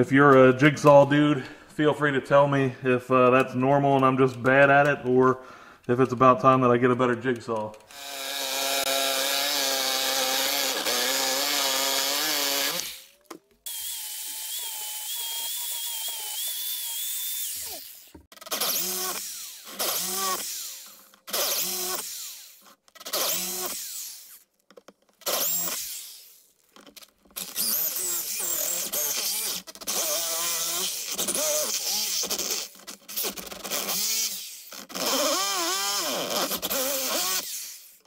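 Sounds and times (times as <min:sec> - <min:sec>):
jigsaw cutting metal sheet: 0:07.8 - 0:24.4, 0:25.2 - 0:38.0.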